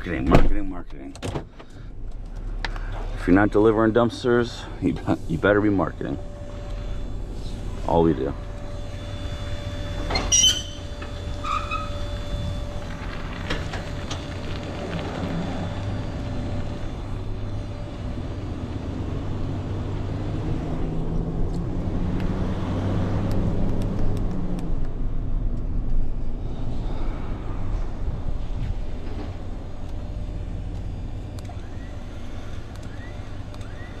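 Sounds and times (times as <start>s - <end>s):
truck engine and road noise: 0.0s - 34.0s
short high squeaks: 8.7s - 13.6s.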